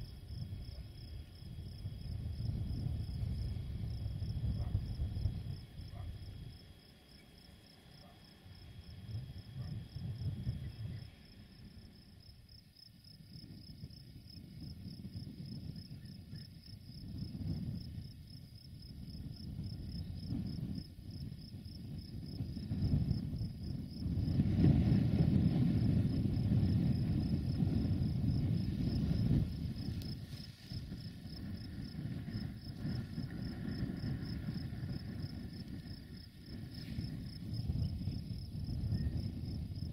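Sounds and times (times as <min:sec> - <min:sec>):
crickets trilling: 0:00.0 - 0:39.9
low uneven rumble: 0:17.0 - 0:39.9.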